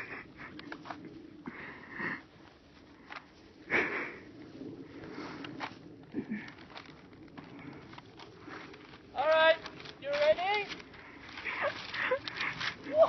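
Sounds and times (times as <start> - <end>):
person breathing: 0.0 - 9.1, 10.8 - 13.0
footsteps crunching in snow: 4.4 - 13.0.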